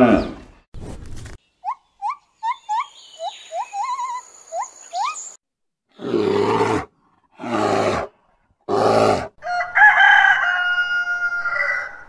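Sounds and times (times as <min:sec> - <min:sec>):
monkeys giving high calls: 0:01.6 - 0:05.4
bear roaring: 0:05.9 - 0:09.4.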